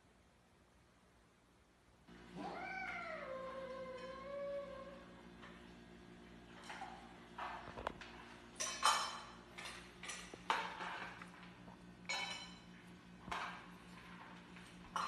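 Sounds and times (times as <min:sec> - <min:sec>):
kibble clinking in metal bowls: 0:08.6 - 0:11.5, 0:12.1 - 0:12.7.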